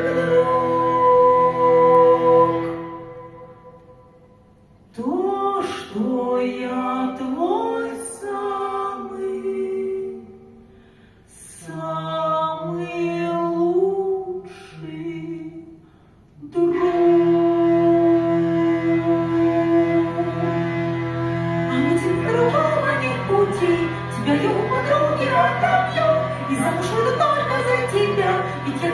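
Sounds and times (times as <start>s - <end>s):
person singing: 0.0s - 3.8s, 16.4s - 28.9s
hurdy-gurdy drone: 0.0s - 4.4s, 16.6s - 28.9s.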